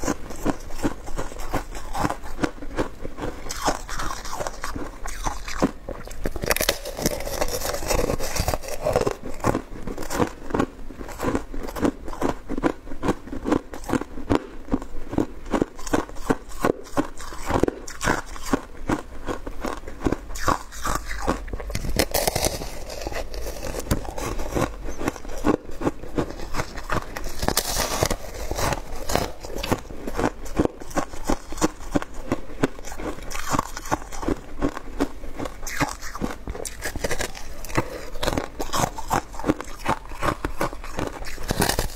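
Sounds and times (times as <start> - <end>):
shaved ice being chewed: 0.0 - 41.9.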